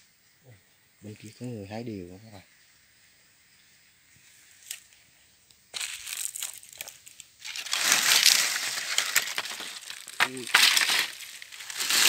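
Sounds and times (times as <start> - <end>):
dry leaves and twigs crunching: 4.2 - 5.0, 5.7 - 12.0.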